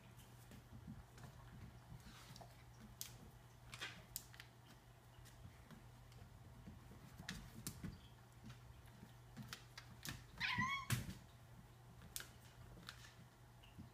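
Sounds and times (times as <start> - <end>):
cat meowing: 10.4 - 11.0.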